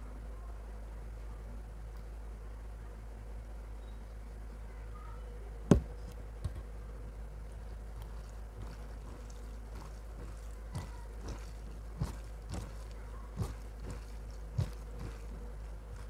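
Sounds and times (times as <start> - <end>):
hand squishing food on plate: 7.5 - 16.0.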